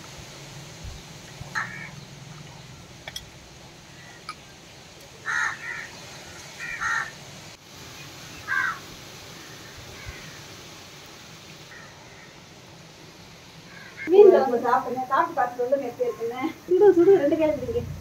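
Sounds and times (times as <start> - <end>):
crow cawing: 1.5 - 2.0, 3.9 - 4.4, 5.2 - 7.2, 8.4 - 10.5, 11.7 - 12.4, 13.7 - 14.1.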